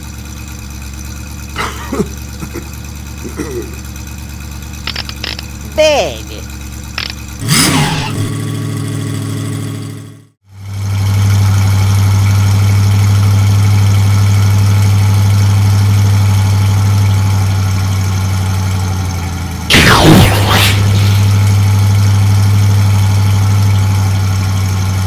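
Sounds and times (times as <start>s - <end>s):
low engine drone: 0.0s - 10.3s, 19.7s - 25.0s
loud engine running: 0.0s - 25.0s.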